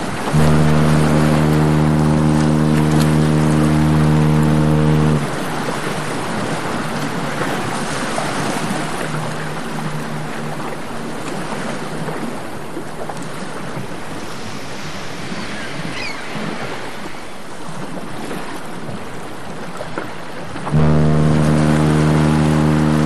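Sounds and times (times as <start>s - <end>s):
wind on microphone: 0.0s - 19.7s
faint low hum: 0.4s - 5.4s, 8.6s - 13.0s, 20.8s - 23.0s.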